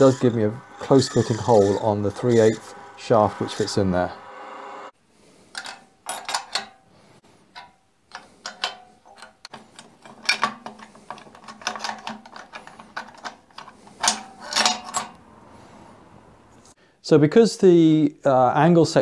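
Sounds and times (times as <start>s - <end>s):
metal clamps clinking: 5.6s - 6.9s, 7.5s - 15.2s.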